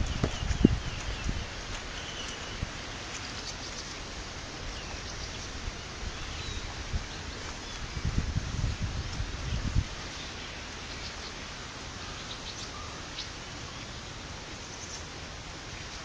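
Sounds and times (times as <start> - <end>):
outdoor ambience hiss: 0.0 - 16.0.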